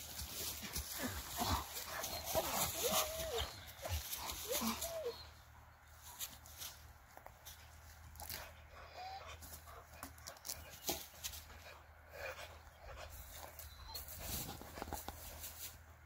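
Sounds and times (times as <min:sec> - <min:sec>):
dog whimpering: 0:02.0 - 0:05.4.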